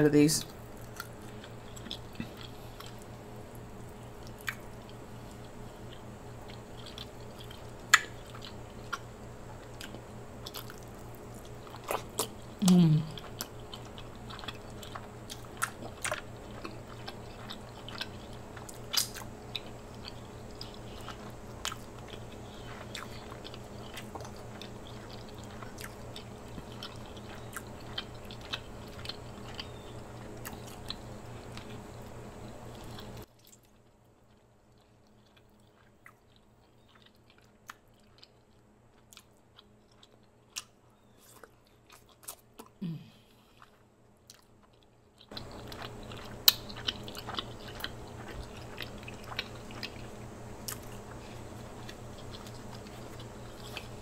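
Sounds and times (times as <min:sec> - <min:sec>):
steady background hum: 0:00.0 - 0:54.0
chewing and biting crab meat: 0:00.6 - 0:54.0.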